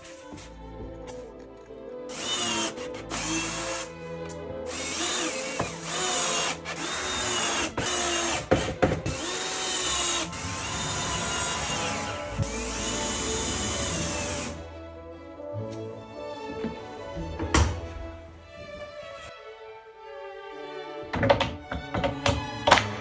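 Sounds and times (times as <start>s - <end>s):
cordless drill driving screws: 2.1s - 3.9s, 4.7s - 14.6s.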